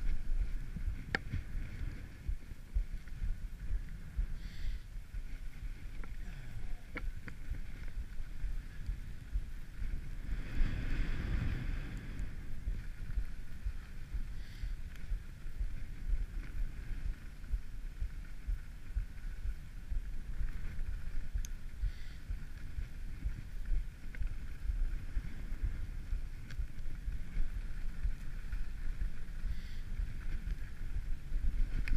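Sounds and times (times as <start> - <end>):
wind rumbling on microphone: 0.0 - 31.9
skis sliding on packed snow: 6.9 - 31.9.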